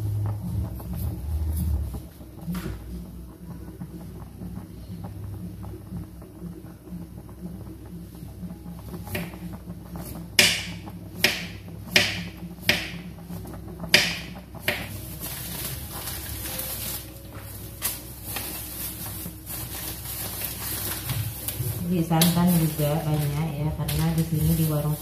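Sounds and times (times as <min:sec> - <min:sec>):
plastic bag rustling: 0:14.9 - 0:25.0.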